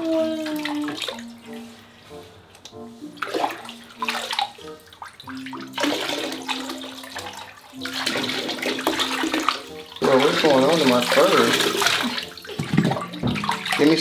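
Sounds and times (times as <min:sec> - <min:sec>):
water splashing in tub: 0:00.0 - 0:01.4, 0:03.2 - 0:14.0
water pouring from cup: 0:03.2 - 0:14.0.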